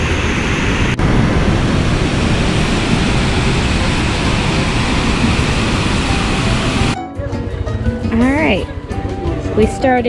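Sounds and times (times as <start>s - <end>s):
waterfall roaring: 0.0s - 7.0s.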